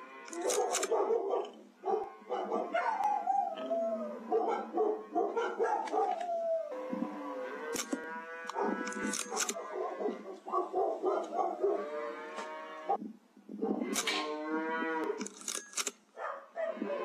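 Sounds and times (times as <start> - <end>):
sharp clicks: 0.3 - 1.6, 7.7 - 9.6, 13.9 - 14.2, 15.1 - 16.0
cattle mooing: 6.7 - 10.4, 11.4 - 13.0, 14.0 - 15.2.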